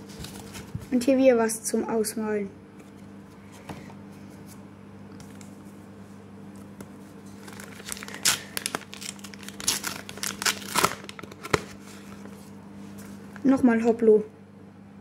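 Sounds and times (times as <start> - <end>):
faint steady hum: 0.0 - 15.0
wrapper crinkling and tearing: 7.3 - 12.4.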